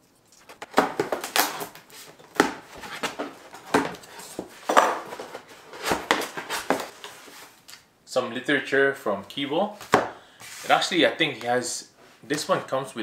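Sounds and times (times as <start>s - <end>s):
cardboard box rustling and scraping: 0.5s - 7.6s.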